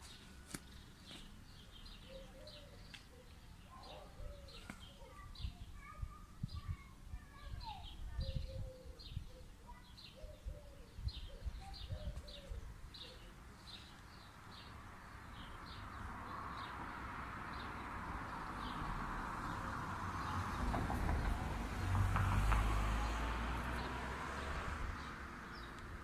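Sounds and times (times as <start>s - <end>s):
vehicle approaching: 16.2s - 26.0s.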